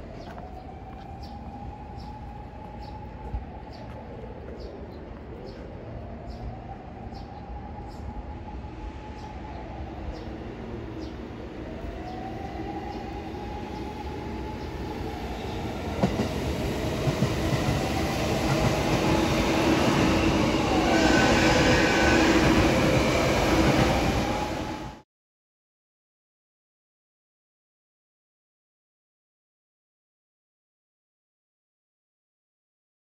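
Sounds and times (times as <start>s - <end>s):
electric trains passing: 0.0s - 25.0s.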